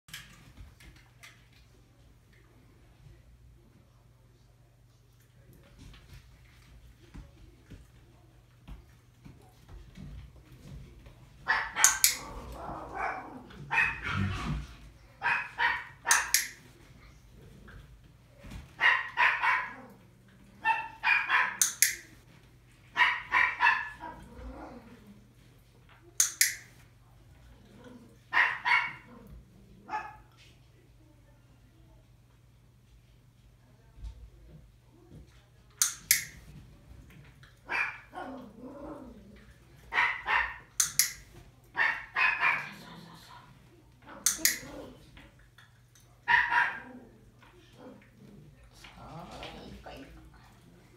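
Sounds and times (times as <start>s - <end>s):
puppy barking sharply: 20.6s - 21.6s.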